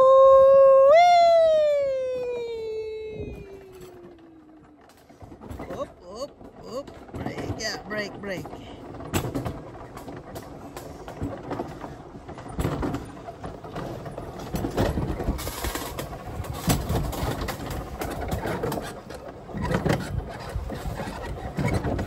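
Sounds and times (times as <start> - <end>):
sled rushing down rail track: 0.0 - 22.0
wheels clicking on rail: 0.0 - 22.0.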